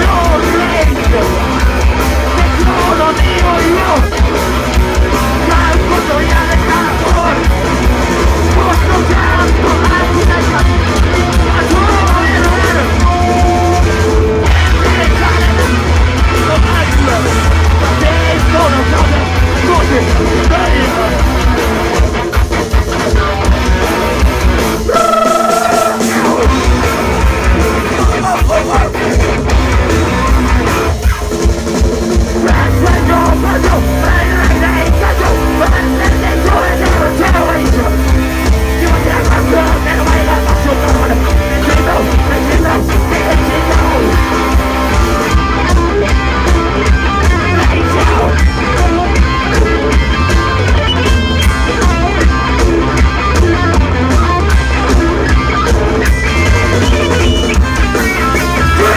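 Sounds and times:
person singing: 0:00.0 - 0:01.5, 0:02.3 - 0:04.1, 0:05.2 - 0:07.5, 0:08.4 - 0:21.3, 0:24.9 - 0:27.1, 0:32.4 - 0:44.5, 0:46.4 - 0:50.1, 0:58.4 - 0:58.9
punk band playing loud: 0:00.0 - 0:58.9.

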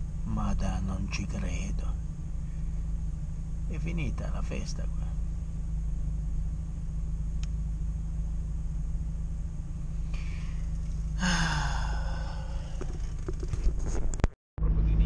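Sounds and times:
van engine drone and road noise: 0:00.0 - 0:15.0
short breathy sigh: 0:11.2 - 0:12.8.

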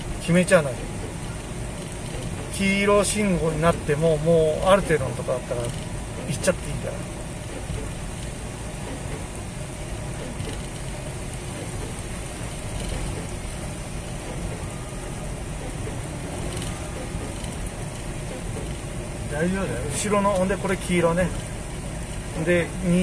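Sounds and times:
engine running: 0:00.0 - 0:23.0
tyres on wet road: 0:00.0 - 0:23.0.

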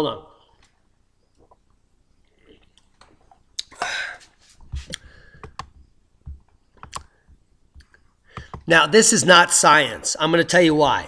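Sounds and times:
computer mouse clicks: 0:04.9 - 0:07.1.

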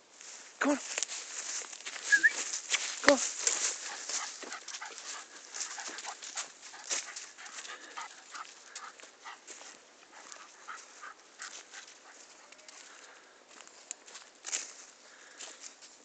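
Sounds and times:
footsteps crunching dry leaves: 0:00.0 - 0:16.0
dog panting: 0:03.5 - 0:13.1.

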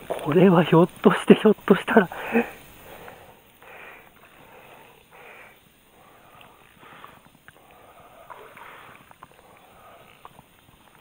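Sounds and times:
man breathing: 0:02.1 - 0:10.4
faint clicks: 0:05.9 - 0:11.0.

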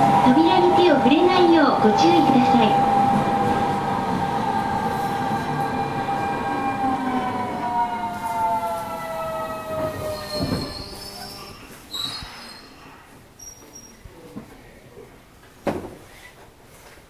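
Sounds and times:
train motor whine: 0:00.0 - 0:11.5
faint high brake squeal: 0:10.0 - 0:14.1.

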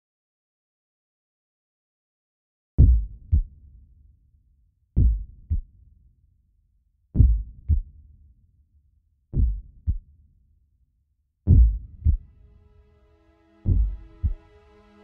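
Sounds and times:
heartbeat thumps: 0:02.8 - 0:03.5, 0:05.0 - 0:05.6, 0:07.2 - 0:07.8, 0:09.4 - 0:10.0, 0:11.5 - 0:12.2, 0:13.7 - 0:14.4.

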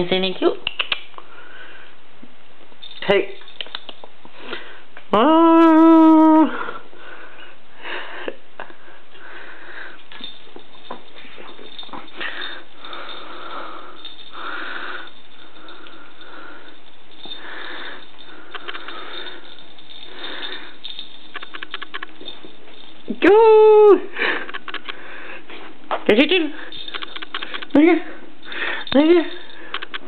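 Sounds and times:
kitten rustling with toy on rug: 0:10.0 - 0:23.1.

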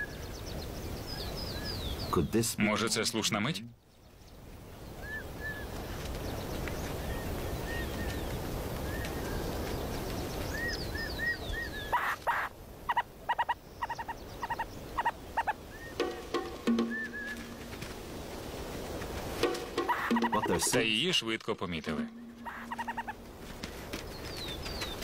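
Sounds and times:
owls chirping calls: 0:04.9 - 0:05.8, 0:10.4 - 0:17.7, 0:19.5 - 0:20.8, 0:22.0 - 0:23.3.

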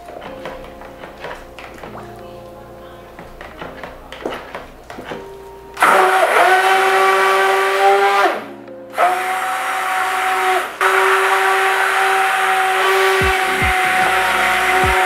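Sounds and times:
stick blender motor whine: 0:05.8 - 0:08.4, 0:09.0 - 0:15.0.

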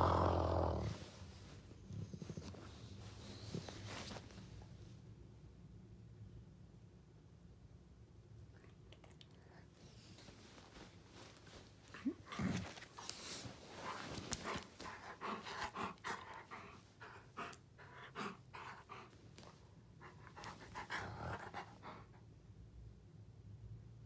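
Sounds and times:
dog panting: 0:12.3 - 0:22.2.

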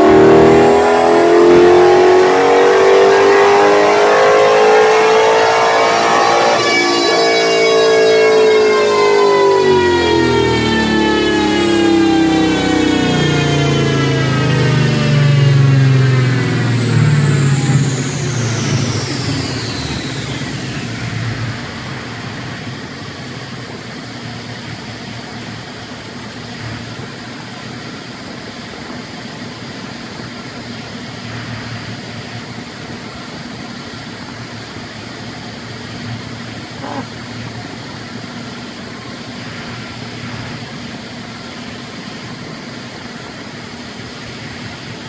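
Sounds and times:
engine whine falling in pitch: 0:00.0 - 0:27.0
engine idling: 0:08.6 - 0:38.2.

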